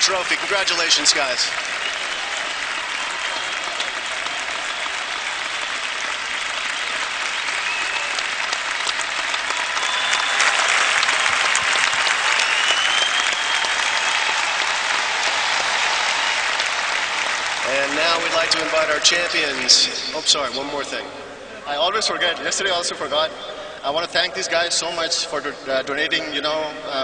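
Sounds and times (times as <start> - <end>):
crowd applauding: 0.0 - 20.8.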